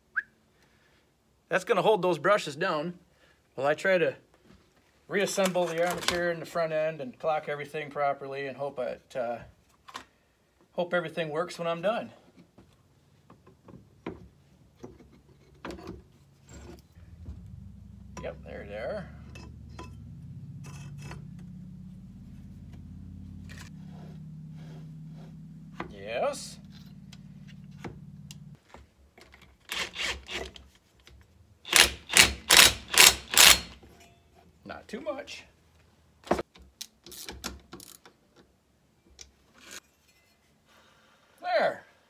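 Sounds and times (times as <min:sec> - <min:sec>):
faint low hum: 0:12.9 - 0:28.6
cordless drill bursts: 0:29.7 - 0:30.4, 0:31.7 - 0:33.8.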